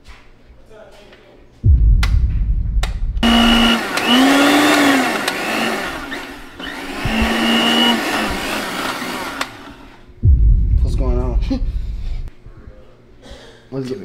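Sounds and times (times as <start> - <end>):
blender motor whirring: 3.2 - 10.0.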